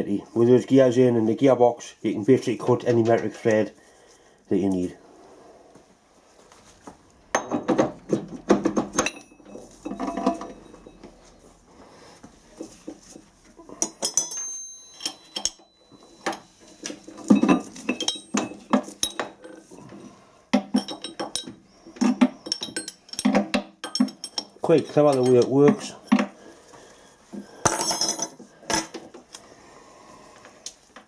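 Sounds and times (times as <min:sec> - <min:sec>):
metal gears clinking and knocking: 0:08.6 - 0:11.0, 0:13.8 - 0:19.6, 0:20.6 - 0:25.8.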